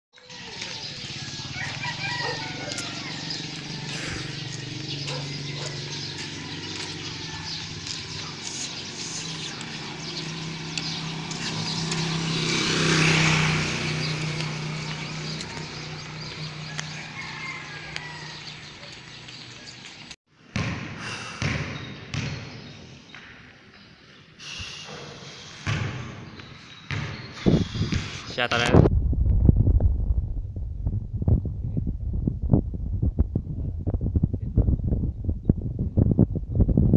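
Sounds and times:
motor vehicle passing: 0:00.2 - 0:20.2
street noise: 0:00.2 - 0:28.9
thumps echoing in a hall: 0:20.5 - 0:23.6.

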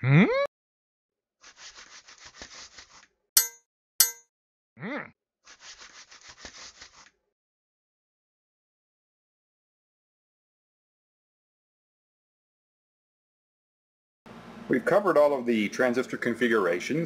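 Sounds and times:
metallic clangs: 0:03.4 - 0:04.2.

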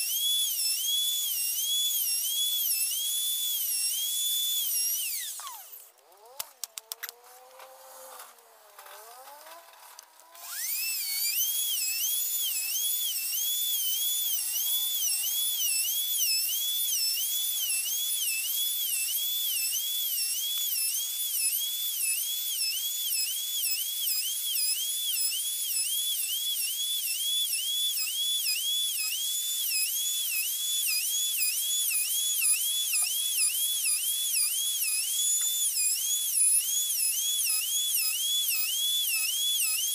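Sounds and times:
router bit cutting wood: 0:00.0 - 0:39.9
router motor whine: 0:00.0 - 0:39.9
router clicks: 0:05.2 - 0:11.4.

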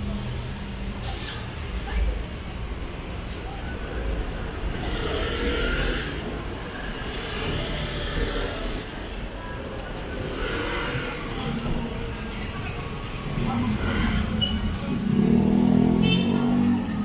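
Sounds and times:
low traffic rumble: 0:00.0 - 0:17.0
motor vehicles running nearby: 0:00.0 - 0:17.0.

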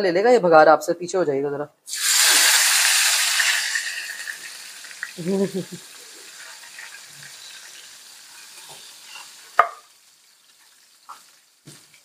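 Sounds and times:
hot oil sizzling in a frying pan: 0:01.9 - 0:12.0.

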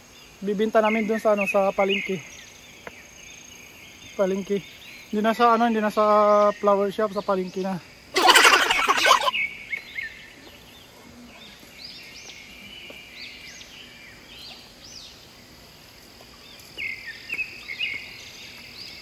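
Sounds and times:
high insect chorus: 0:00.0 - 0:19.0
short chirping bird calls: 0:08.2 - 0:10.2.

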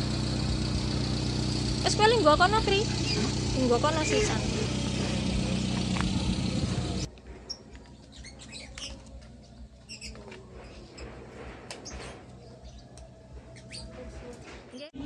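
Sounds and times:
vehicle engine running: 0:00.0 - 0:07.2
small birds chirping: 0:02.6 - 0:11.1, 0:11.8 - 0:14.0.

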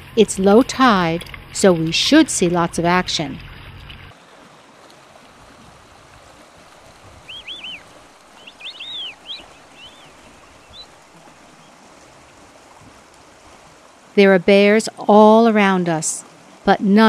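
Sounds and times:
water rushing: 0:00.0 - 0:17.0
bird calls: 0:07.2 - 0:11.8.

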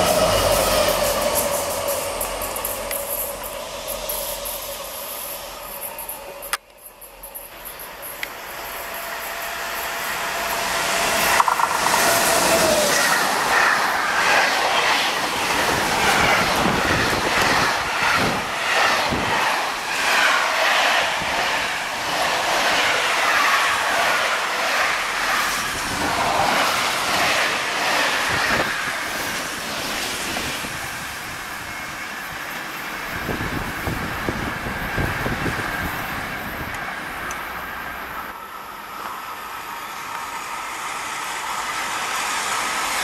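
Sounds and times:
electric locomotive whine: 0:00.0 - 0:43.0
train wheels knocking: 0:09.8 - 0:14.9.

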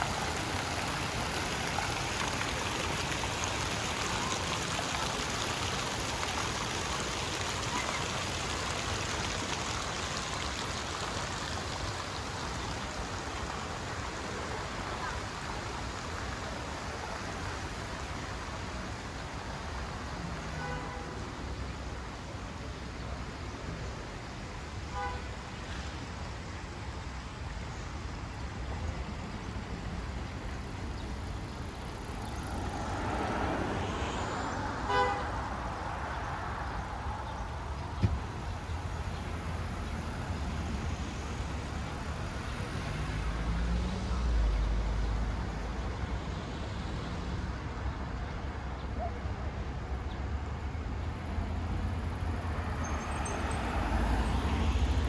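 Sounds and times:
traffic rumble: 0:00.0 - 0:55.0
car horn toot: 0:34.9 - 0:35.3.

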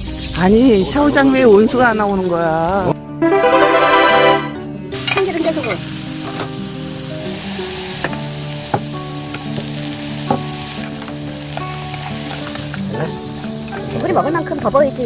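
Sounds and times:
food sizzling in oil: 0:04.9 - 0:15.0.

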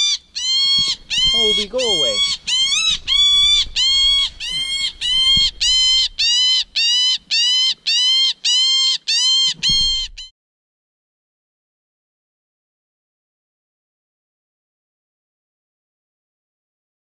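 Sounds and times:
blue jay alarm calls: 0:00.0 - 0:10.3.

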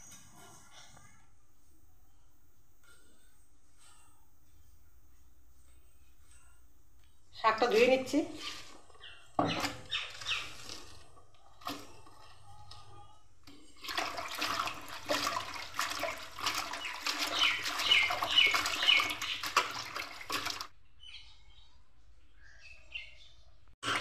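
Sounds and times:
hands sloshing leaves in water: 0:13.8 - 0:20.7.

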